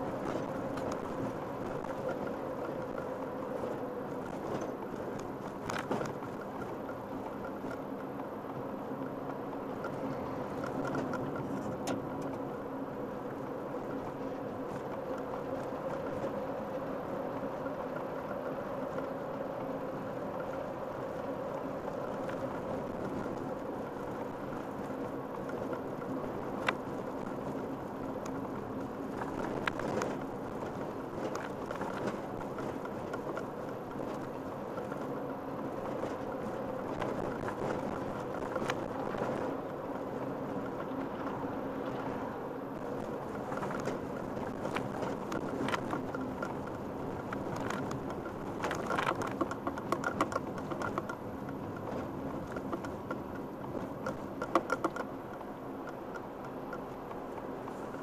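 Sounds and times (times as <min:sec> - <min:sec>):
car engine hum and road noise: 0:00.0 - 0:58.0.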